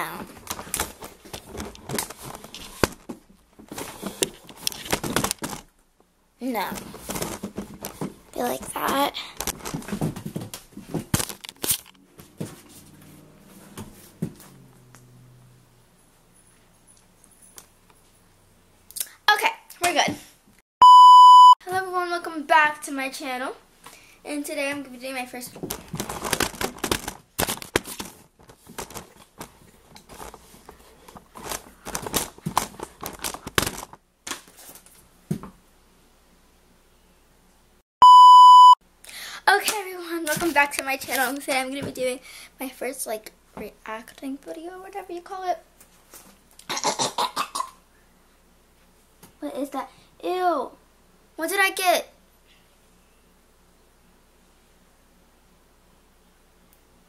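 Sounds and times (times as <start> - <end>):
test-tone beep: 20.8 - 21.6, 38.0 - 38.8.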